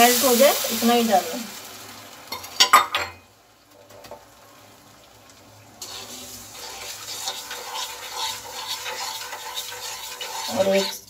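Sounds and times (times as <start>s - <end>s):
steady hiss: 0.0s - 11.0s
spatula scraping a pan: 5.8s - 11.0s.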